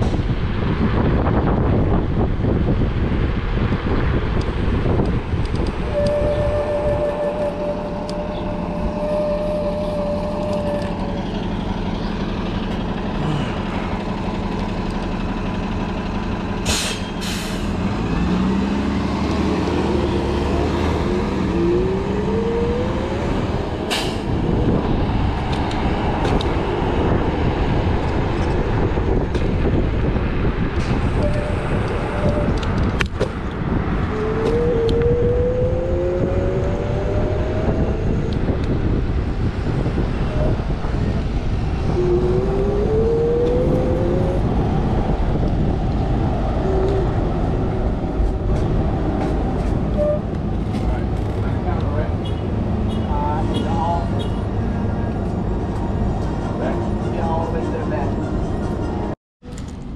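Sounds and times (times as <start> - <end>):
city street traffic: 0.0 - 59.9
heavy vehicle engine running: 0.0 - 59.9
engine whines: 3.8 - 53.0
air brake hisses: 16.6 - 17.8.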